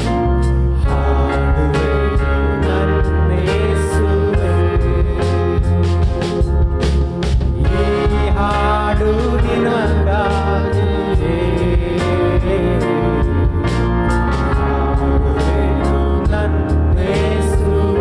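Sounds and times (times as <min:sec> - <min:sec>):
worship song band music: 0:00.0 - 0:18.0.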